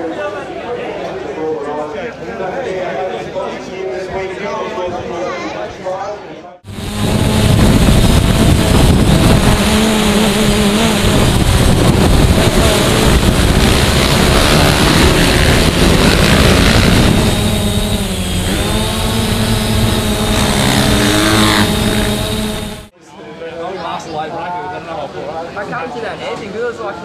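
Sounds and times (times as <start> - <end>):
motorcycle engines running hard: 6.7 - 22.9.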